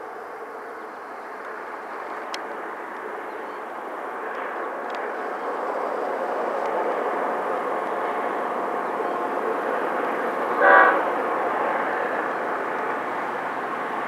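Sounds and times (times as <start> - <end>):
distant freight train rolling: 0.0 - 14.0.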